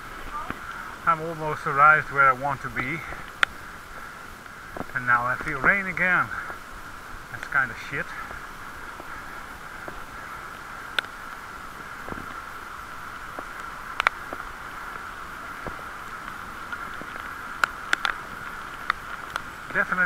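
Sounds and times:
bicycle wheel whirring: 0:00.0 - 0:20.0
bicycle clicks: 0:03.0 - 0:05.8, 0:10.8 - 0:19.8.

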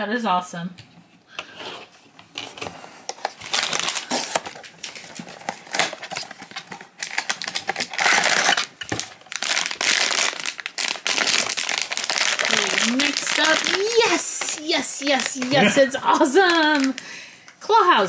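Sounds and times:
foil bag crinkling: 0:03.1 - 0:17.2.

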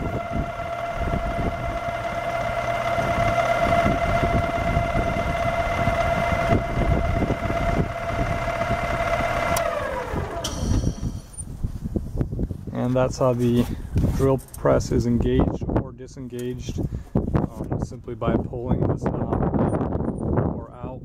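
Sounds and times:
drill press motor whine: 0:00.0 - 0:11.5.

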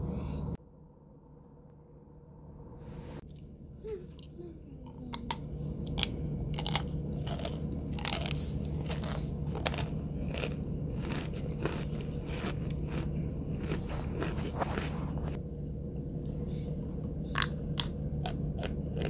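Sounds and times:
person crunching hard food: 0:05.8 - 0:15.4, 0:17.3 - 0:19.0.

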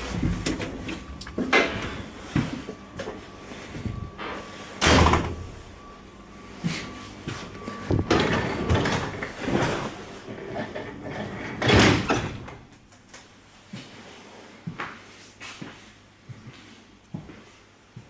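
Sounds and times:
train doors opening and shutting: 0:00.0 - 0:12.8
loud door bang: 0:04.8 - 0:05.5.

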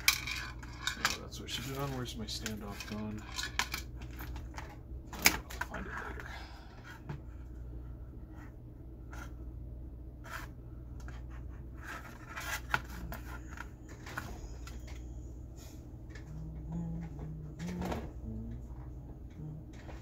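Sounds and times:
handling clicks and scrapes: 0:00.0 - 0:06.2
steady low hum: 0:00.0 - 0:20.0.

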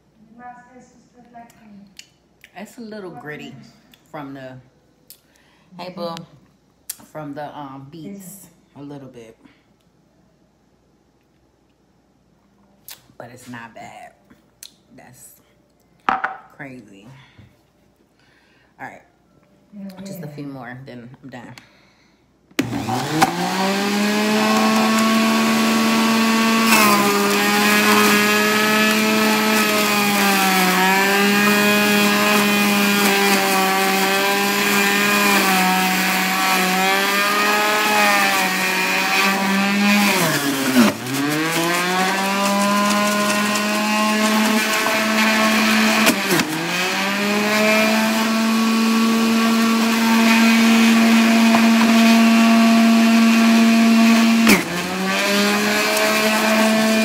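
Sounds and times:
juicer motor humming: 0:22.6 - 0:57.0.

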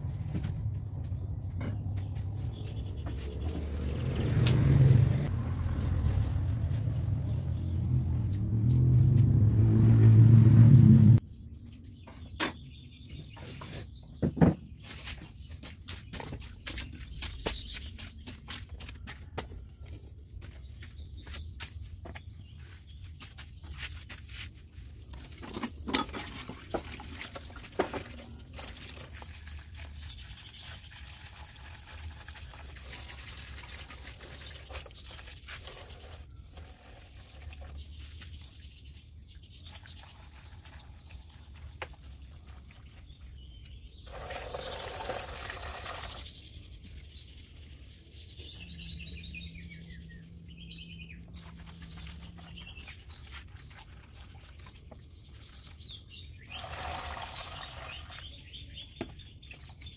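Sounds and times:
hose water pouring into plastic basins: 0:25.0 - 0:43.3, 0:43.9 - 0:47.0, 0:51.5 - 0:58.4.

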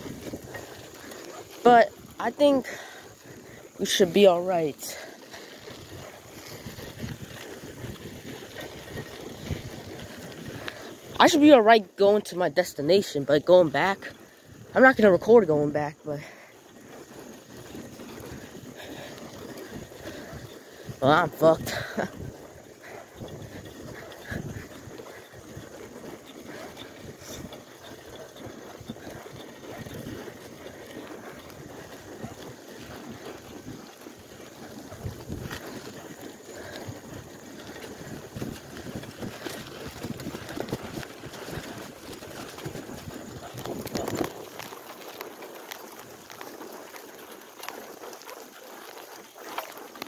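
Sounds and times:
bike rattling clicks and knocks: 0:00.0 - 0:11.6, 0:16.2 - 0:50.0
bicycle tire and frame rumble: 0:00.0 - 0:50.0
wind on microphone: 0:04.8 - 0:10.9, 0:17.8 - 0:25.7, 0:34.9 - 0:44.7.

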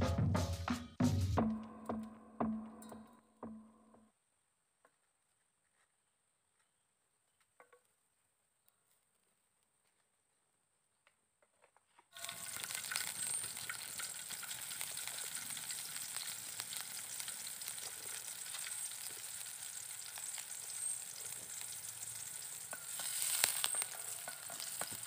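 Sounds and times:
aromatics sizzling in oil: 0:12.2 - 0:25.0.

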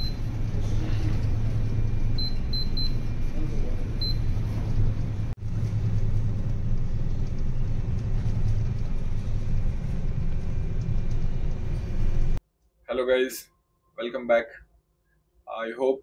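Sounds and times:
ship machinery hum and rumble: 0:00.0 - 0:12.4.

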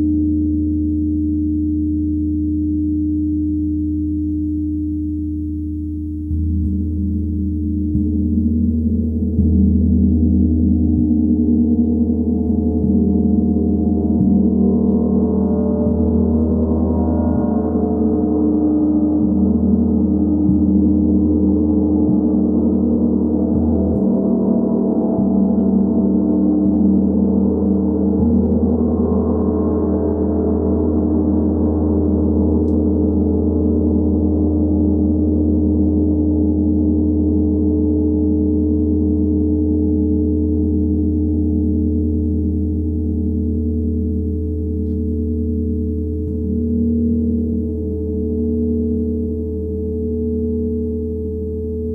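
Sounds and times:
gong ringing: 0:09.3 - 0:42.3.

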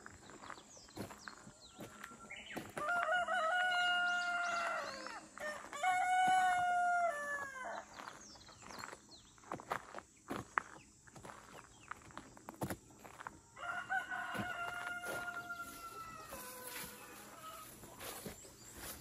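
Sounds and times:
rooster crowing: 0:01.8 - 0:08.0, 0:13.6 - 0:17.9
chicken calls: 0:13.5 - 0:19.0.

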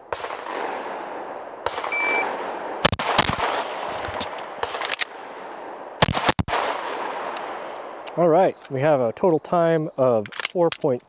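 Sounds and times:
pistol shots: 0:00.0 - 0:08.1
shot timer beep: 0:01.9 - 0:02.3.

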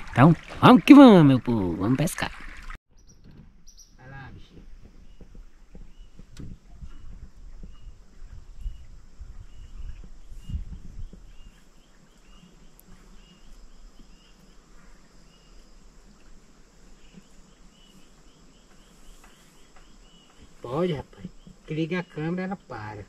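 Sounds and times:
low rumbling thumps: 0:03.2 - 0:11.5.

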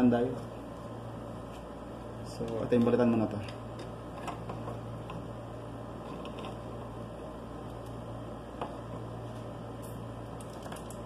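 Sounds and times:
room tone hum and hiss: 0:00.0 - 0:11.0.

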